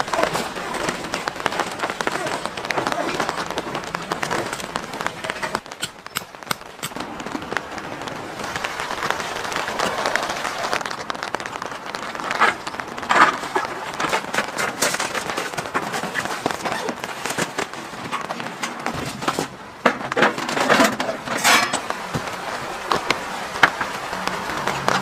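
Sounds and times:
rain patter: 0.0 - 25.0.

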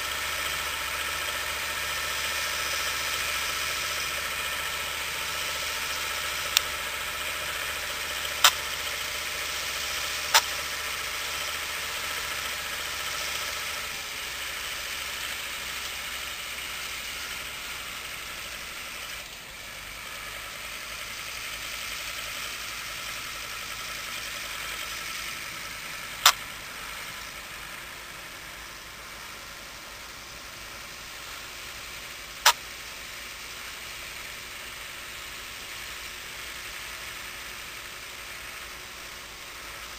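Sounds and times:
tractor diesel engine under load: 0.0 - 39.9
sharp clicks: 6.4 - 6.7, 8.3 - 8.7, 10.2 - 10.6, 26.2 - 26.5, 32.4 - 32.6.

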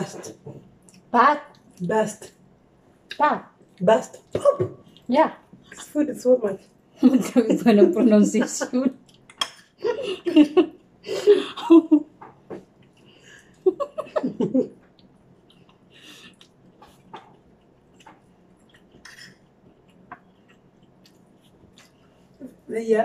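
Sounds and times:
chewing: 14.9 - 22.4.

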